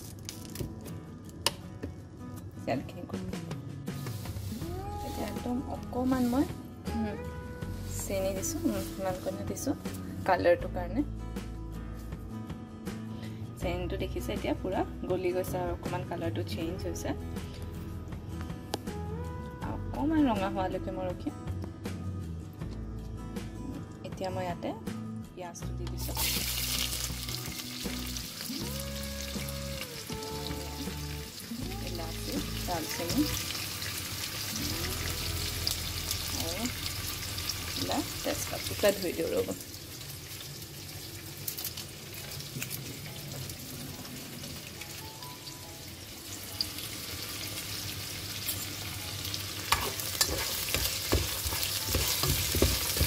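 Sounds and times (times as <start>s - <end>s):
onions sizzling in hot oil: 26.0s - 53.0s
spatula scraping a pot: 49.7s - 53.0s.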